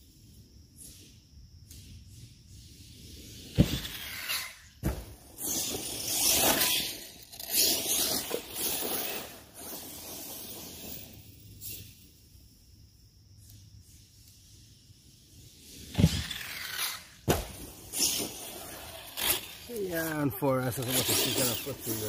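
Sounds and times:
tyres scrabbling over ground: 3.4 - 11.0, 15.7 - 22.0
rc car landing hard: 3.4 - 11.1, 15.8 - 19.7.

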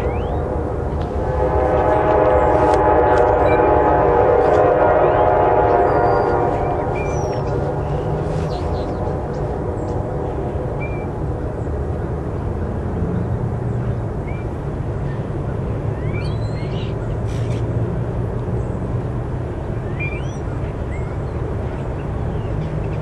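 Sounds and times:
bird chirping: 0.0 - 0.4, 5.9 - 9.0, 16.0 - 17.6, 19.9 - 21.2
low engine rumble: 0.0 - 23.0.

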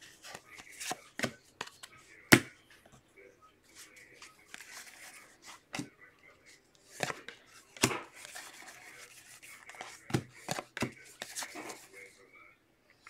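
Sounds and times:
cards rubbing and rustling: 0.0 - 2.5, 3.7 - 5.9, 6.8 - 12.1.

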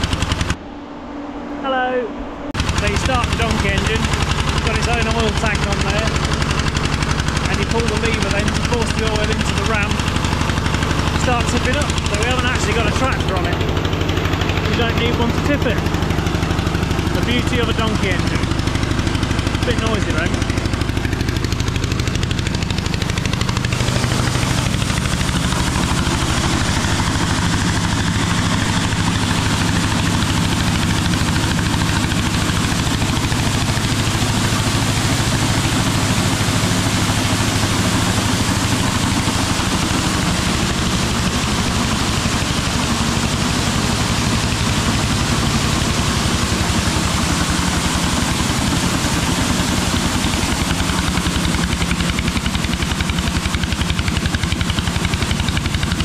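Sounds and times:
engine running noisily: 0.0 - 56.0.

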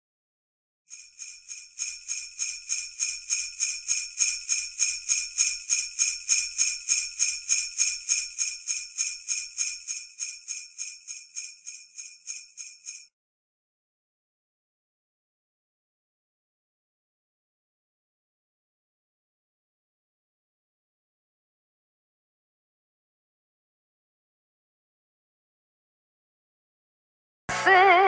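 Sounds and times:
sleigh bells shaking: 0.9 - 13.1.

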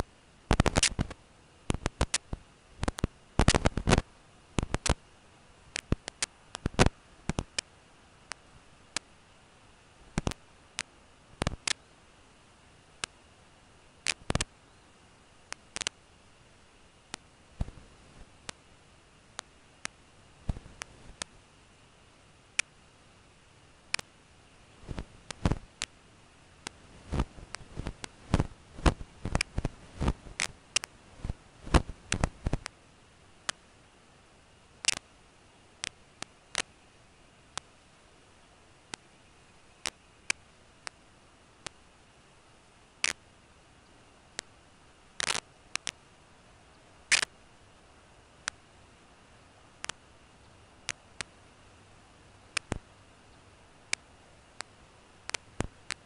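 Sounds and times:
sharp dry clicks: 0.0 - 4.0, 4.6 - 5.0, 5.7 - 9.1, 10.1 - 11.8, 14.0 - 14.5, 15.5 - 16.0, 23.9 - 24.1, 26.6 - 32.8, 34.8 - 35.1, 35.8 - 36.8, 43.0 - 43.2, 45.2 - 46.0, 46.7 - 47.4, 52.5 - 56.0
faint steady hiss: 0.0 - 56.0.

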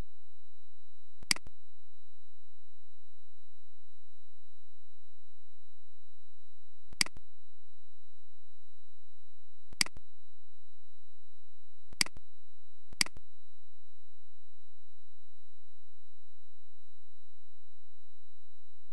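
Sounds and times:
computer mouse clicks: 7.0 - 7.2, 9.8 - 10.0, 12.0 - 12.2.

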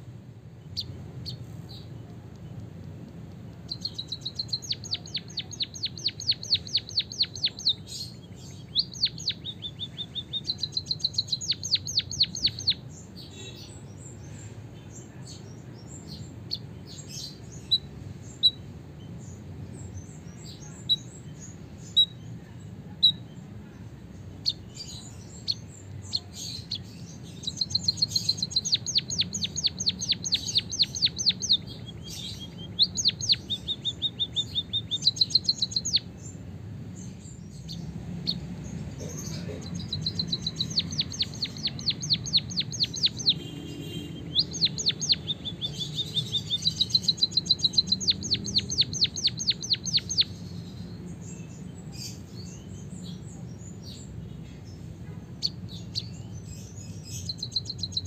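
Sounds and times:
bird singing rapid trills: 0.0 - 2.6, 3.5 - 58.0.

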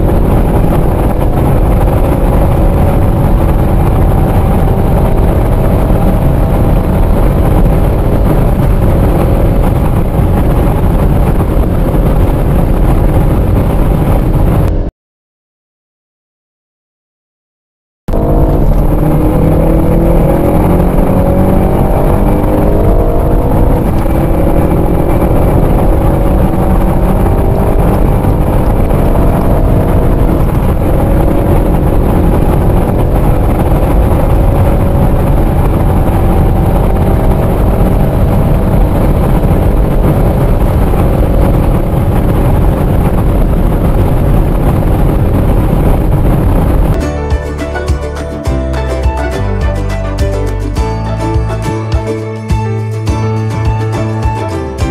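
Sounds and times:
car engine accelerating hard: 0.0 - 14.9, 18.1 - 47.0.

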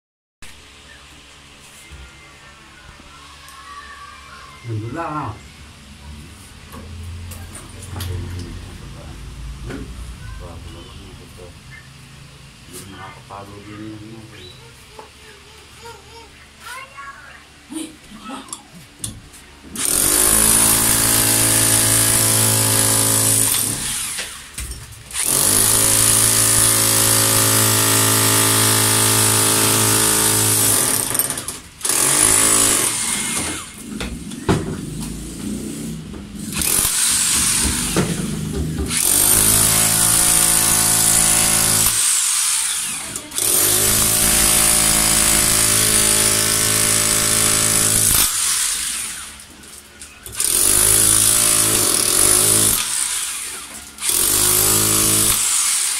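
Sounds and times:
rotary hammer chipping concrete: 25.2 - 33.6, 38.9 - 48.7, 50.4 - 55.9.

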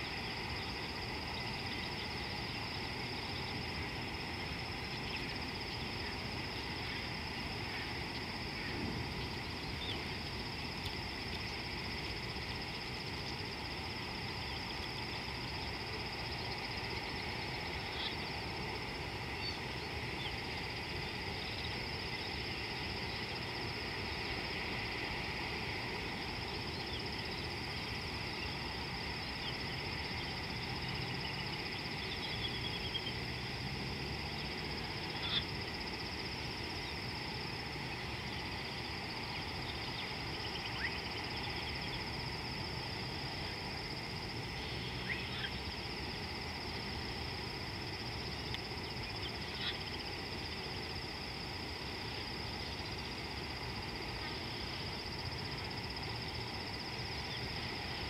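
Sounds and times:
high-pitched insect drone: 26.0 - 58.0.

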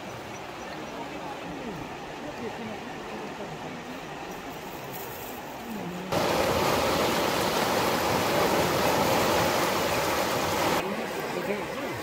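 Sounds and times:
floodwater rushing: 5.5 - 12.0.

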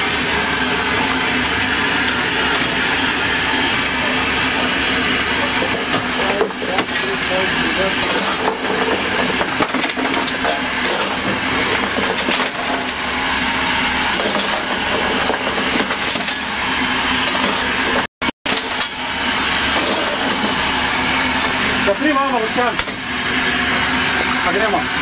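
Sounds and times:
steam locomotive running: 0.0 - 25.0
coal lumps clattering: 3.7 - 22.8
shovel scraping into coal: 7.9 - 9.4, 10.6 - 13.0, 14.1 - 16.6, 17.2 - 18.8, 19.7 - 20.6.

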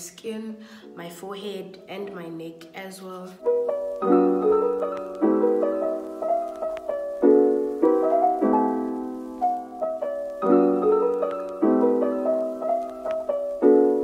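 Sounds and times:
piano music: 3.2 - 14.0.

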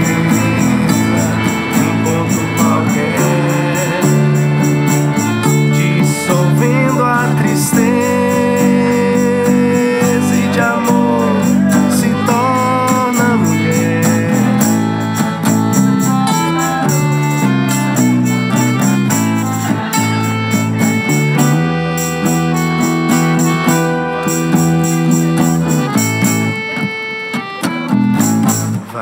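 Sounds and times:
fast tambourine-like percussion: 0.0 - 26.6, 28.0 - 28.8
piano accordion chords: 0.0 - 29.0
strummed acoustic guitar: 0.0 - 29.0.

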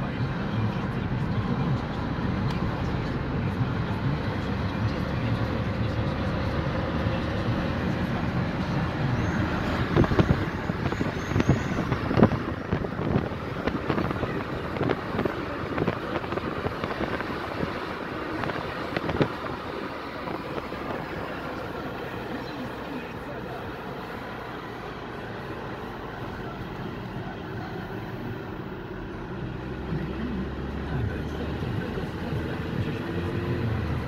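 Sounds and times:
car road and engine noise: 0.0 - 34.0.

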